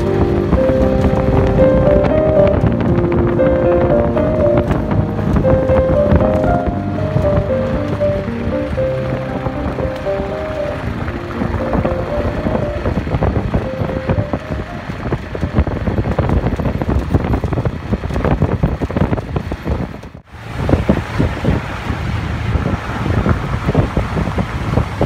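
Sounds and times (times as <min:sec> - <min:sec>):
background music: 0:00.0 - 0:15.6
wind buffeting microphone: 0:00.0 - 0:25.0.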